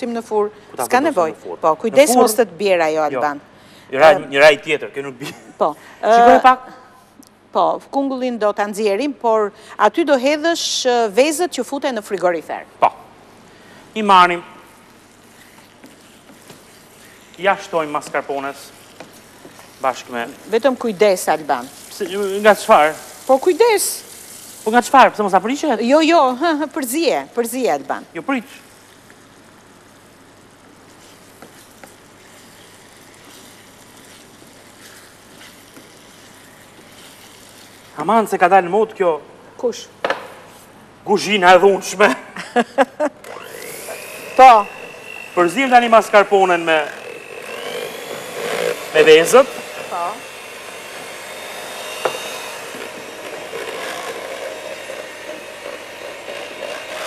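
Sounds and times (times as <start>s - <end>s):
faint steady hiss: 0.0s - 43.2s
electric mixer whipping: 15.8s - 27.3s, 43.2s - 57.0s.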